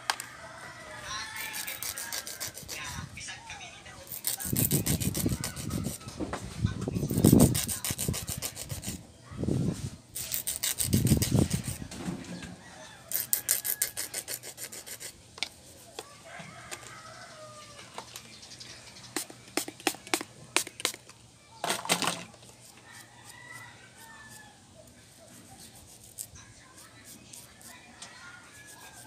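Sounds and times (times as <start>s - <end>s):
nail file rasping: 1.4s - 3.0s, 4.1s - 6.1s, 7.1s - 9.0s, 10.2s - 11.8s, 13.1s - 15.2s, 25.4s - 27.8s, 28.5s - 29.0s.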